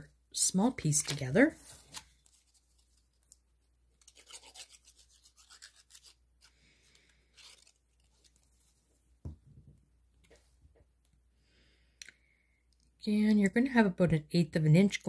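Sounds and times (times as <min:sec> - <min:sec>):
paper rustling: 0:00.9 - 0:09.0
quick scratchy strokes: 0:04.2 - 0:06.2.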